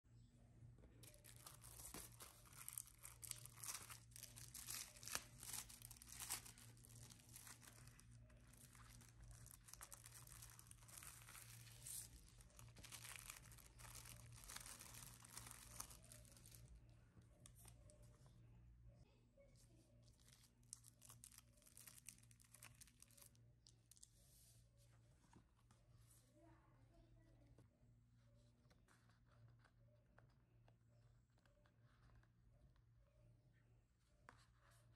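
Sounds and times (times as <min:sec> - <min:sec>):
paper and sand crackling and rustling: 0:01.0 - 0:16.6.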